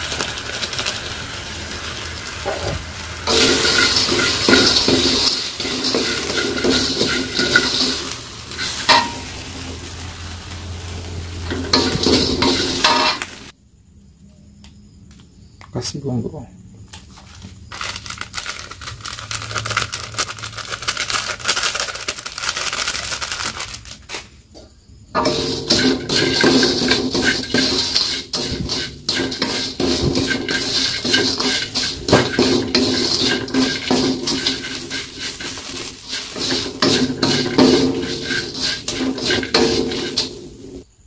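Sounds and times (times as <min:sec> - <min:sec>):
noodles crackling in wok: 0:00.0 - 0:13.5, 0:17.2 - 0:24.3, 0:25.2 - 0:40.9
spatula scraping against wok: 0:00.7 - 0:13.5, 0:25.2 - 0:41.0.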